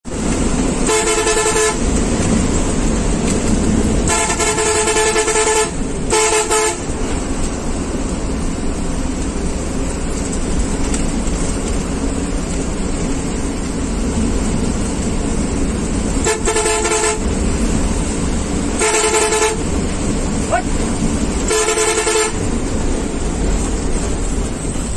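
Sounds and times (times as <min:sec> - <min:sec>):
engine and road noise: 0:00.0 - 0:24.9
bus horn blasts: 0:00.7 - 0:02.0, 0:03.9 - 0:07.0, 0:16.1 - 0:17.6, 0:18.7 - 0:20.7, 0:21.4 - 0:22.5.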